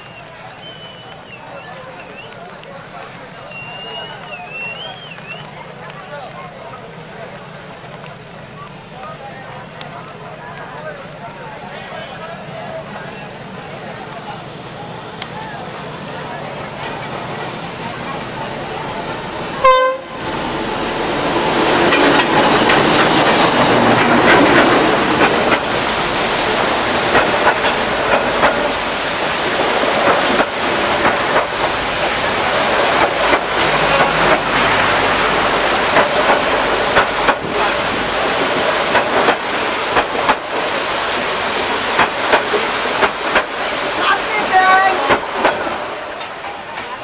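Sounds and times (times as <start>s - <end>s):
train passing at speed: 0.0s - 47.0s
wheels clattering on rails: 0.0s - 47.0s
rush of water spray: 9.7s - 47.0s.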